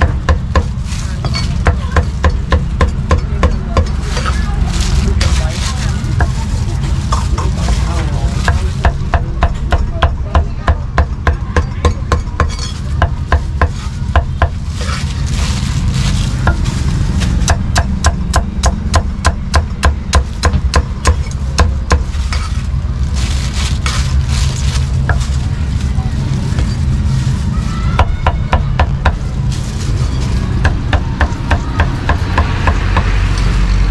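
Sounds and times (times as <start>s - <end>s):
cleaver chopping meat on wood: 0.0s - 0.8s, 17.4s - 22.5s
low rumble: 0.0s - 33.9s.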